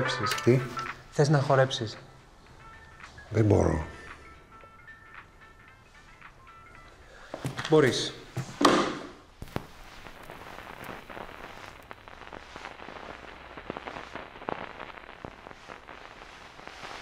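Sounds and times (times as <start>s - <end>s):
shoes tapping on wooden floor: 7.3s - 9.6s.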